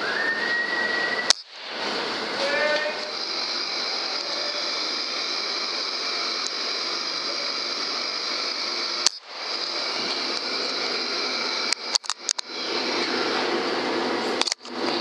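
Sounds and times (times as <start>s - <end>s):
suppressed air rifle shot: 1.3s - 2.2s.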